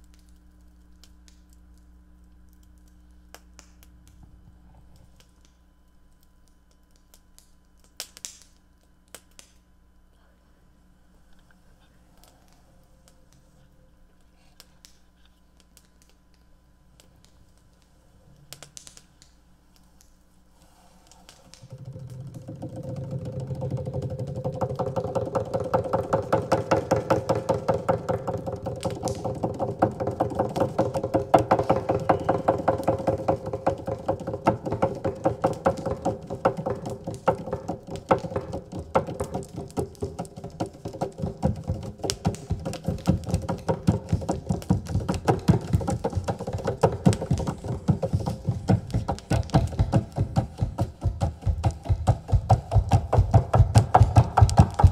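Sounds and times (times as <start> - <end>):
wire string droning with clicking pulse: 21.5 - 43.6.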